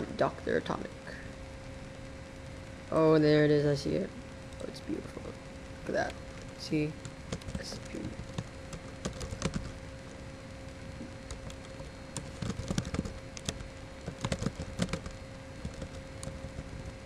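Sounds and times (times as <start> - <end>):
faint steady hum: 0.0 - 17.0
typing on keyboard: 7.3 - 9.7, 11.3 - 17.0.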